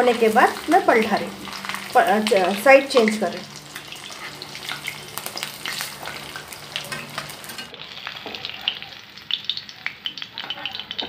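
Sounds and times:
fish sizzling in hot oil: 0.0s - 11.0s
steel spatula scraping pan: 3.6s - 7.7s.

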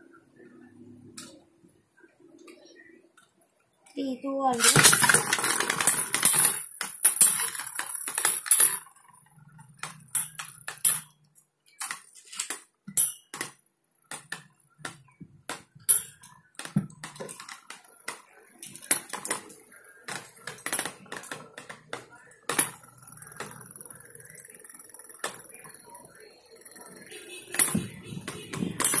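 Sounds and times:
spinning tops clacking: 4.5s - 9.2s, 15.5s - 29.0s
spinning tops scraping plastic: 4.5s - 10.9s, 22.5s - 29.0s.

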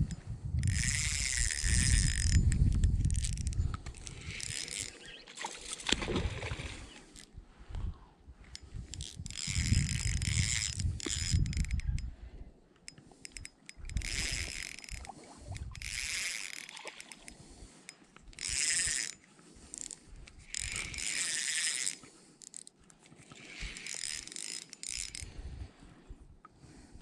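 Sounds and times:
spinning reel whirring: 0.0s - 5.2s, 8.6s - 12.1s, 13.2s - 17.3s, 18.3s - 22.7s, 23.5s - 25.3s.

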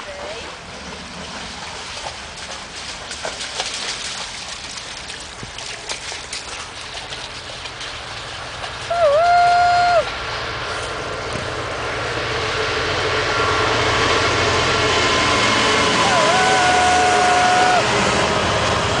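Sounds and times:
dog splashing through water: 0.1s - 9.0s
water trickling from metal pipe: 3.4s - 8.9s
loud tone dipping in pitch: 15.9s - 18.0s.

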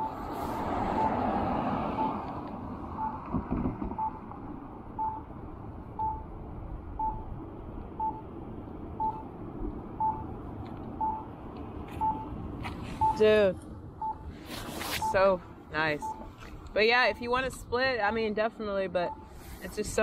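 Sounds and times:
crossing signal beeping: 0.0s - 2.3s, 2.9s - 3.3s, 3.9s - 5.3s, 6.0s - 6.3s, 7.0s - 7.4s, 8.0s - 8.3s, 9.0s - 9.3s, 10.0s - 10.4s, 11.0s - 20.0s
low street noise: 0.0s - 20.0s.

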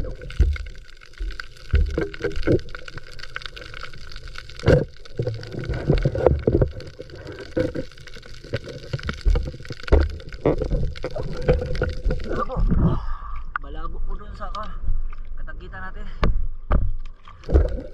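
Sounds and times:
muffled water sloshing underwater: 0.0s - 13.2s, 16.7s - 17.9s
knocks and thumps: 16.2s - 17.9s.

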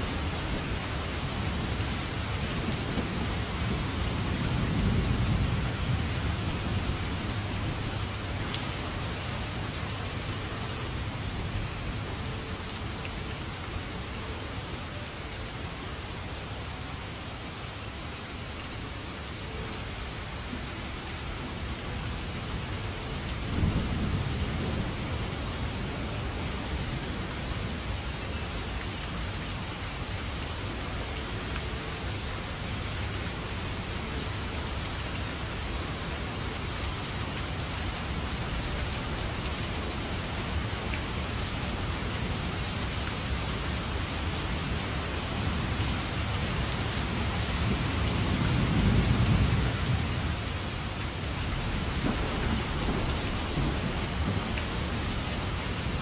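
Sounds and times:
heavy rain falling: 0.0s - 56.0s
thunder rumbling: 51.5s - 56.0s.

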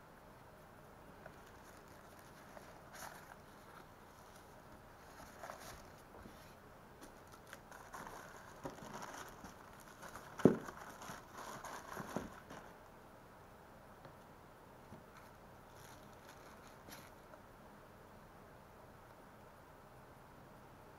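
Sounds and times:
plastic packaging crinkling: 1.3s - 6.1s, 7.0s - 12.7s.

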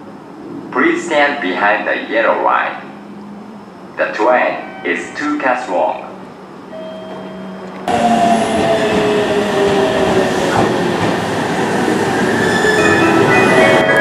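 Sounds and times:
train whining tones: 2.6s - 14.0s
train wheels rolling on rails: 5.9s - 14.0s.

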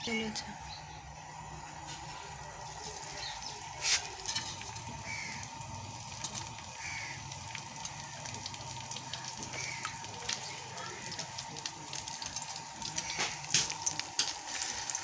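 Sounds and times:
steady low hum: 0.0s - 14.5s
birds calling: 3.0s - 3.8s, 4.6s - 11.2s, 12.8s - 13.5s.

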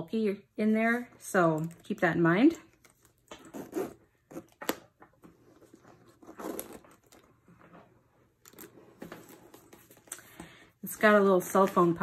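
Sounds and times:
leather backpack rustling: 5.6s - 7.2s.

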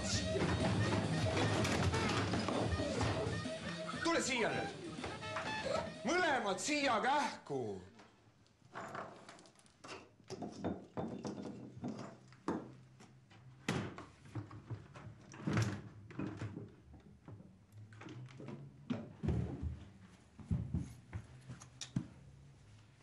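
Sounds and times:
knocks and thuds: 0.0s - 3.5s
footsteps on wooden floor: 0.0s - 4.0s, 19.3s - 22.2s.

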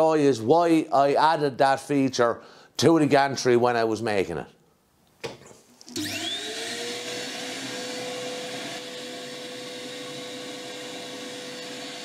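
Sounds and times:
dust extractor motor whine: 5.9s - 12.0s.

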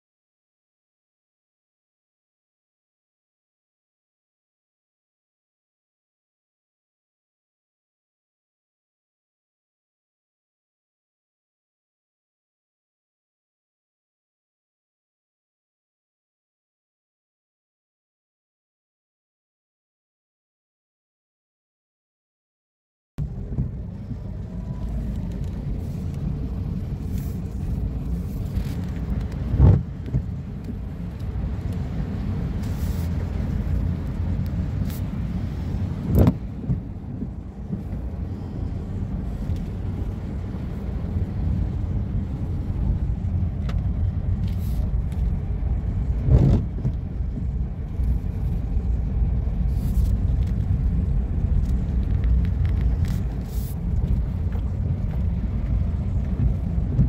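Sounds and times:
car rumbling on flooded road: 23.2s - 57.0s
loud thumps inside car: 29.5s - 30.4s, 36.1s - 37.8s, 46.2s - 47.5s.

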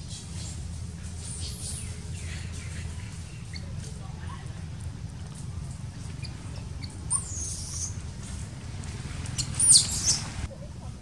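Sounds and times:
baby monkey squealing: 6.2s - 8.0s, 9.4s - 10.3s.

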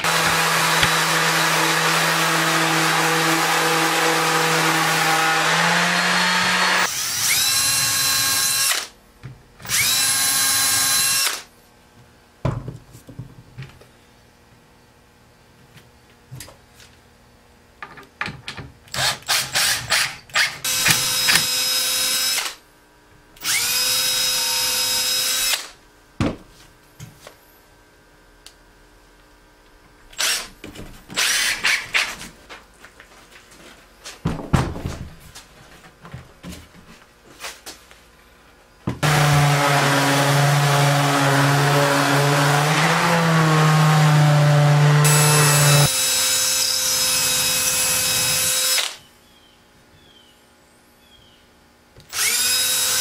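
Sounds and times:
wood and tools clattering: 0.0s - 6.8s
orbital sander running: 0.0s - 8.6s, 39.0s - 48.8s
cordless drill driving screws: 5.0s - 8.9s, 9.7s - 11.4s, 18.9s - 22.6s, 23.4s - 25.7s, 30.2s - 30.5s, 31.2s - 32.0s, 44.4s - 49.0s, 52.1s - 53.0s.

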